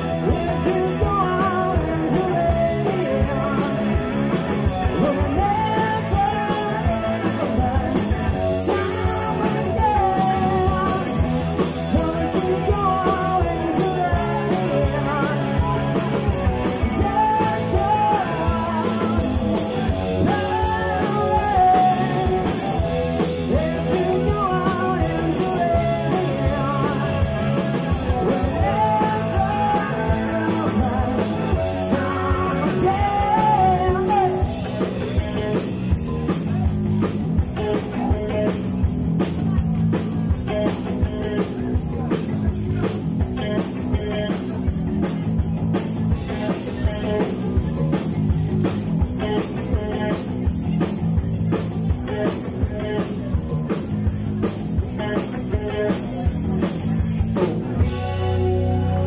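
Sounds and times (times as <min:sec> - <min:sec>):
person singing: 0:00.0 - 0:36.7
rock band playing: 0:00.0 - 0:59.0.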